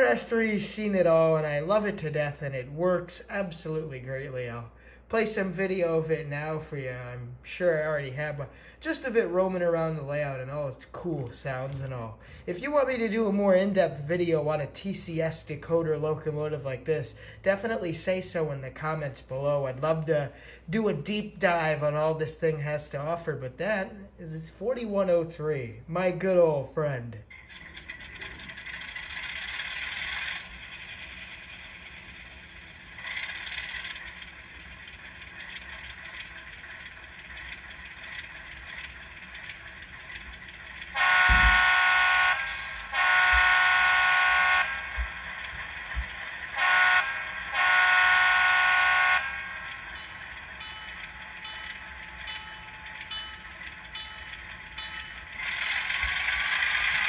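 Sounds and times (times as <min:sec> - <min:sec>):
model locomotive diesel idle: 0:03.5 - 0:57.0
locomotive horn: 0:40.9 - 0:45.3, 0:46.0 - 0:50.0.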